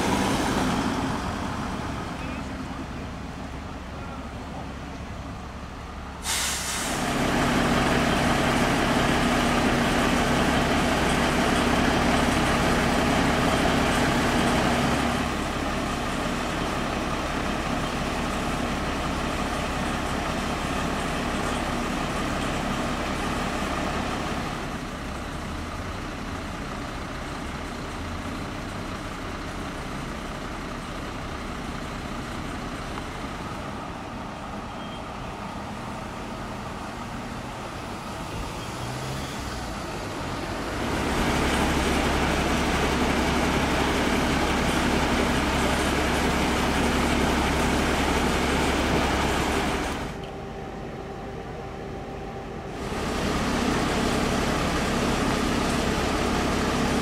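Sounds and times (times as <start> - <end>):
diesel engine running: 0.0 - 57.0
air brakes hissing: 6.2 - 7.2.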